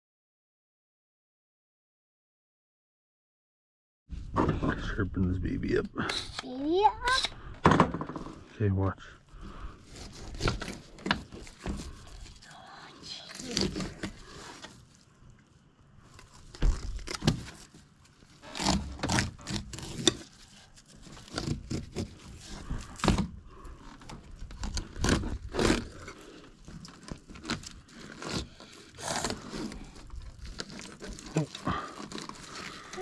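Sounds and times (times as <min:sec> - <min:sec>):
knife scraping fish: 0:18.4 - 0:33.0.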